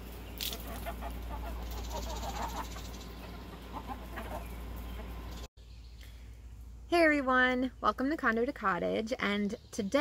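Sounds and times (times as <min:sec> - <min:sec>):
hens clucking: 0:00.4 - 0:05.5.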